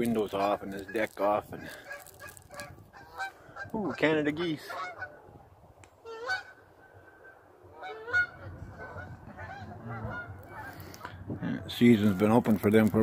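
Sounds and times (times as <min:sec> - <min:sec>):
geese honking: 0:00.3 - 0:05.3, 0:06.0 - 0:11.1.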